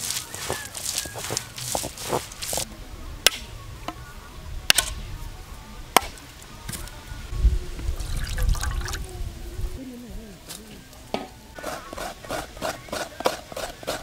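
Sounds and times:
coconut being struck: 3.2s - 3.5s, 4.7s - 5.0s.

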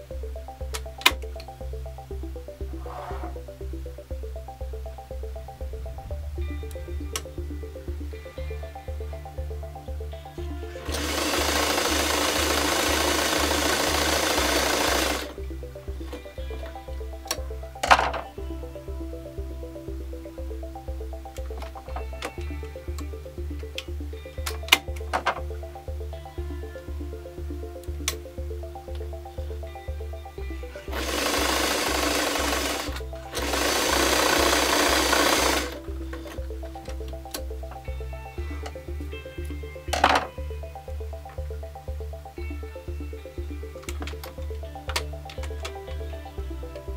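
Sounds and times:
music: 0.0s - 46.9s
sewing machine running: 10.8s - 15.3s, 30.9s - 35.8s
sewing machine stitching: 10.9s - 15.3s.

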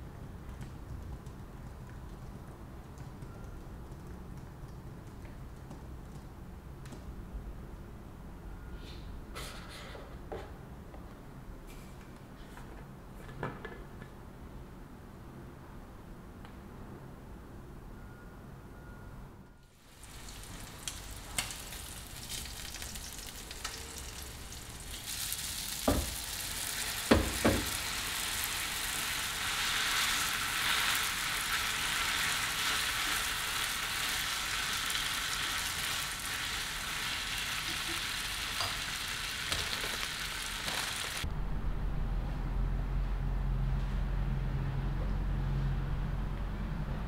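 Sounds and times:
food sizzling in a frying pan: 19.8s - 41.2s.

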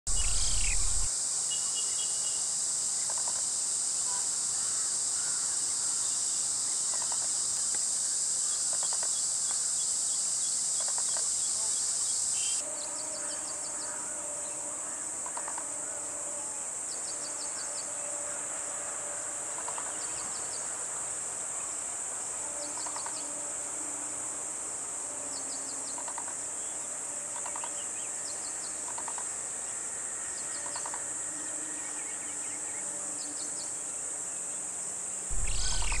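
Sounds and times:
faint low trills: 0.1s - 1.1s, 35.3s - 36.0s
high-pitched insect drone: 0.1s - 6.0s, 22.4s - 26.5s, 27.2s - 34.0s, 35.3s - 36.0s
cricket chirps: 0.1s - 36.0s.

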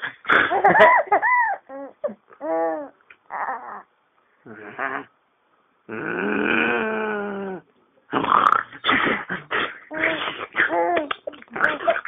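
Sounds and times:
baby laughing: 9.8s - 12.0s.

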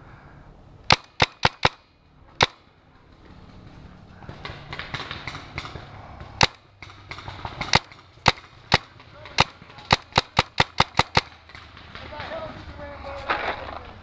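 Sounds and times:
paintball marker shots: 0.9s - 2.6s, 4.2s - 12.4s.

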